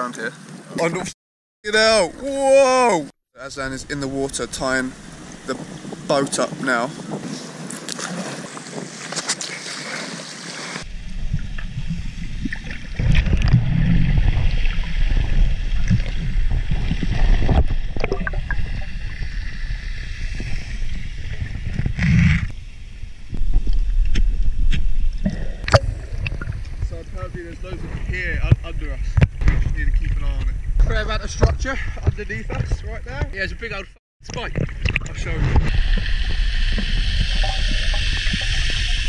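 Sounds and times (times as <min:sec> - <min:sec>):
water and wind hissing: 0:01.8 - 0:33.8, 0:34.4 - 0:39.0
muffled underwater rumble: 0:10.9 - 0:33.3, 0:34.5 - 0:39.0
knocks and crackles on camera housing: 0:31.4 - 0:33.4.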